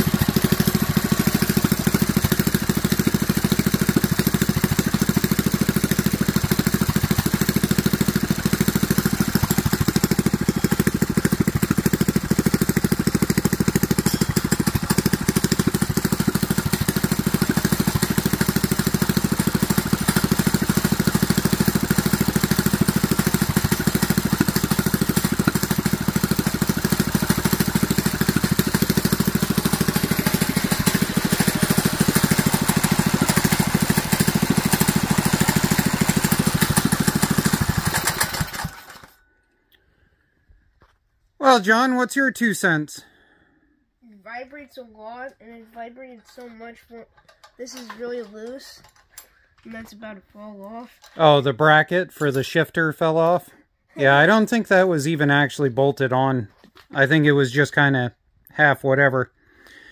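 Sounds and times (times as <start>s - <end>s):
engine running steadily: 0.0s - 39.9s.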